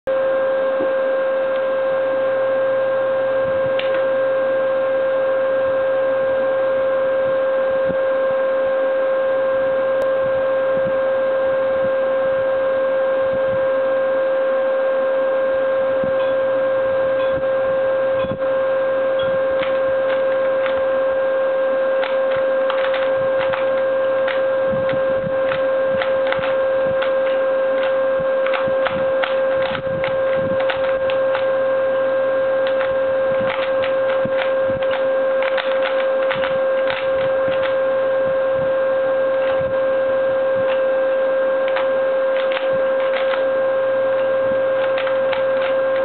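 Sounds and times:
loud electrical drone: 0.1s - 46.0s
puzzle cube layers clicking: 22.0s - 31.5s, 32.6s - 37.8s, 41.7s - 43.5s, 44.8s - 46.0s.

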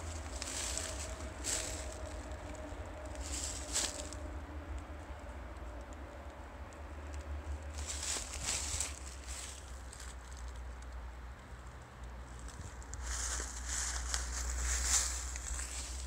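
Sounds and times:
footsteps crunching in dry leaves: 0.0s - 4.3s, 7.6s - 10.6s, 12.4s - 16.0s.

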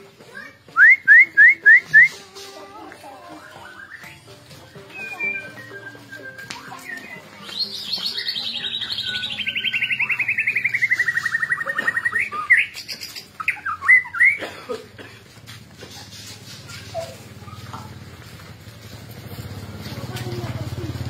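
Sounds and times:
bird whistled notes: 0.7s - 2.2s, 3.3s - 14.4s.

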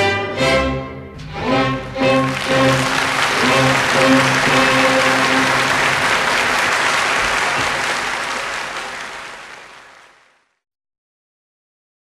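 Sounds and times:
audience applauding: 1.5s - 10.6s.

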